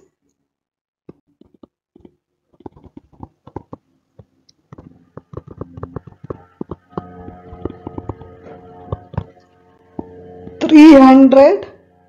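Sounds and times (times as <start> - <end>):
stylus tapping on tablet screen: 1.1 - 10.8
steady hum of held tones: 4.4 - 12.0.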